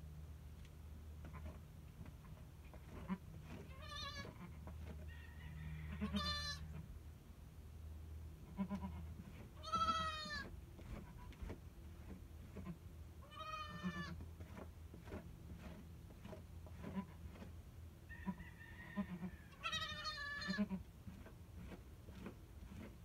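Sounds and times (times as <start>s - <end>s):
goats bleating: 3.0s - 4.6s, 5.9s - 6.7s, 8.5s - 11.2s, 13.2s - 14.2s, 19.0s - 20.8s.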